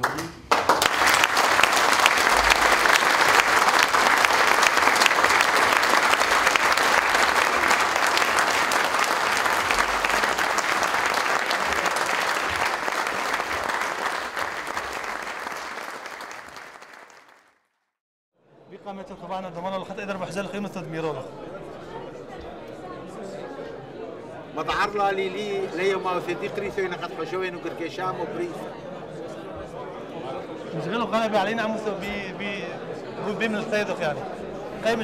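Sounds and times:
crowd applauding: 0:00.0 - 0:17.8.

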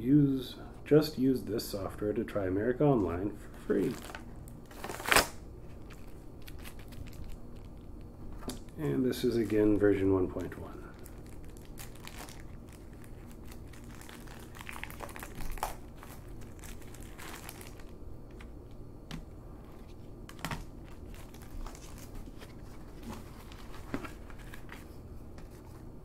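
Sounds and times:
faint low hum: 0:00.0 - 0:26.0
paper packaging rustling: 0:03.7 - 0:08.5, 0:09.2 - 0:18.5, 0:19.6 - 0:26.0.

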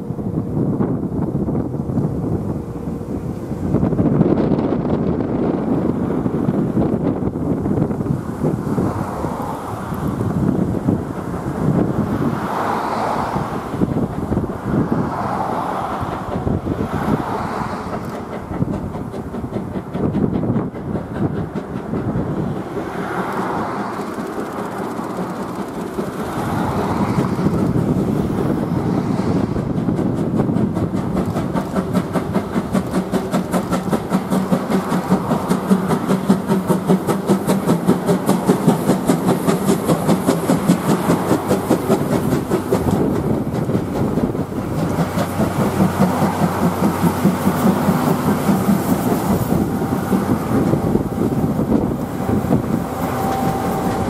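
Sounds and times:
steam locomotive exhaust beating: 0:00.0 - 0:54.0
train wheels clattering over rail joints: 0:03.7 - 0:54.0.

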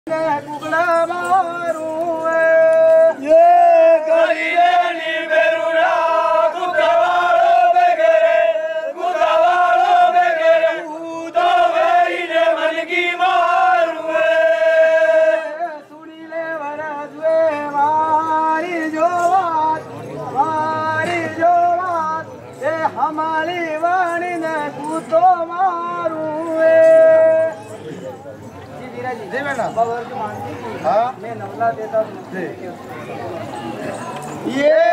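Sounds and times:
group chanting: 0:03.1 - 0:15.8.

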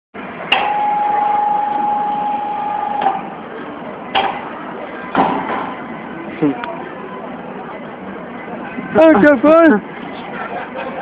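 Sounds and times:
constant noisy hum: 0:00.2 - 0:11.0.

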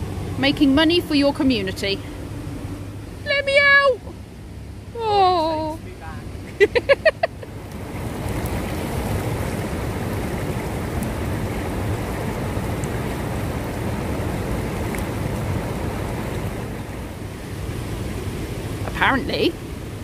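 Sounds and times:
river rushing over rocks: 0:07.7 - 0:20.0.

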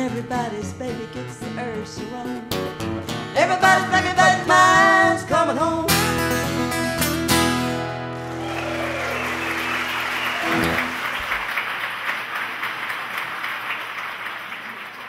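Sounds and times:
acoustic guitars ringing chord: 0:05.9 - 0:11.2
audience applauding: 0:08.1 - 0:15.0.

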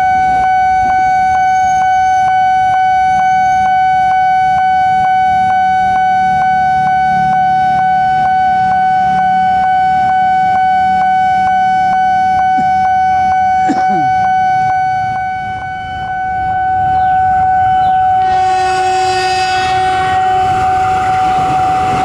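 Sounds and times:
level-crossing warning bell ringing: 0:00.0 - 0:22.0.

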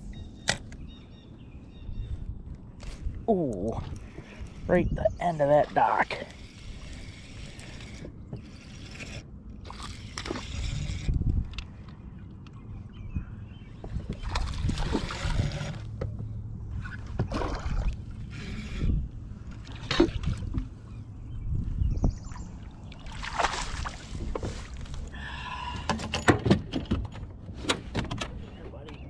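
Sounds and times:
water splashing around boat: 0:13.8 - 0:21.0, 0:22.2 - 0:25.2.

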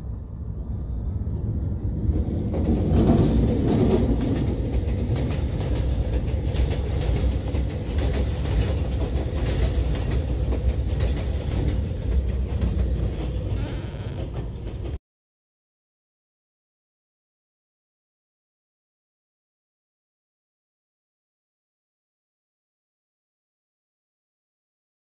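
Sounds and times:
train carriages rumbling: 0:00.4 - 0:15.0
wheels clacking over rail joints: 0:02.0 - 0:15.0.

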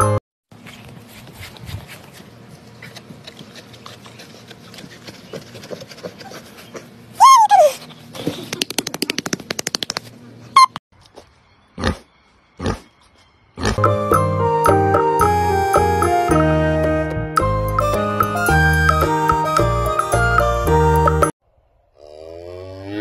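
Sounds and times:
pig grunting: 0:11.8 - 0:12.9, 0:21.9 - 0:23.0.

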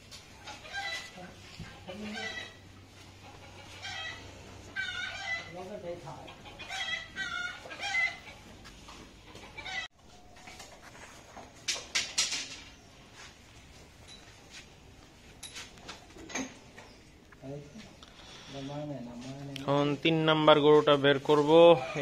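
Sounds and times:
chicken clucking: 0:00.4 - 0:10.4.

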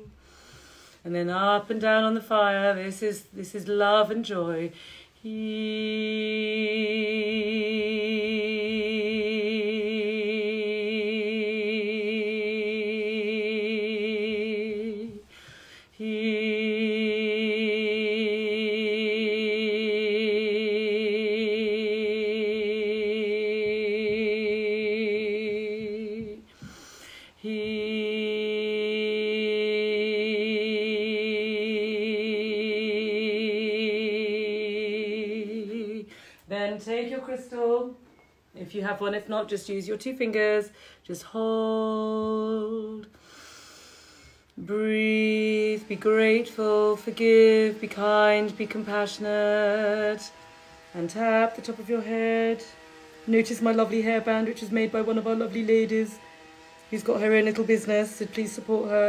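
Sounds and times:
quick in-breath: 0:00.1 - 0:01.0, 0:04.7 - 0:05.2, 0:15.3 - 0:16.0, 0:26.5 - 0:27.4, 0:36.1 - 0:36.5, 0:40.7 - 0:41.0, 0:43.1 - 0:44.6
woman chanting a long vowel: 0:01.0 - 0:15.3, 0:15.9 - 0:26.5, 0:27.4 - 0:38.0, 0:38.6 - 0:43.1, 0:44.6 - 0:59.0.

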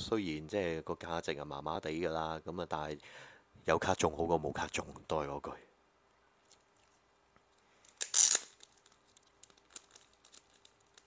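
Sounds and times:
small clicks and crackles: 0:06.4 - 0:11.0
plastic card sleeve crinkling: 0:06.5 - 0:11.0
loud plastic rustle: 0:07.9 - 0:11.0.

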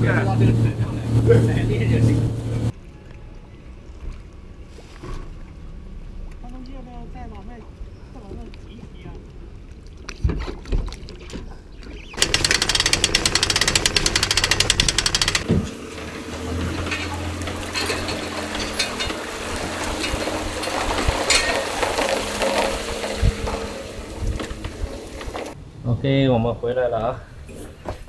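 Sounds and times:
loud fast rattle: 0:12.2 - 0:15.5
outboard motor idling: 0:12.2 - 0:25.6.

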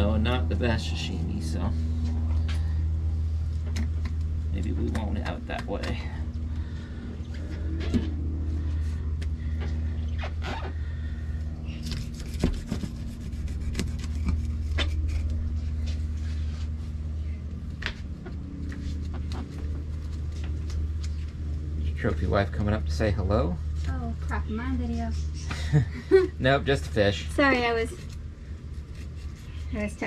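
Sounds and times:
steady low hum: 0:00.0 - 0:30.0
knife cutting and scraping fish: 0:11.5 - 0:17.0, 0:27.8 - 0:30.0.

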